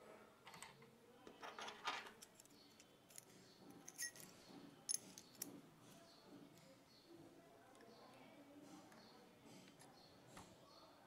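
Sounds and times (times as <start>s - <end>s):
light metallic clicks and clinks: 1.4s - 5.6s.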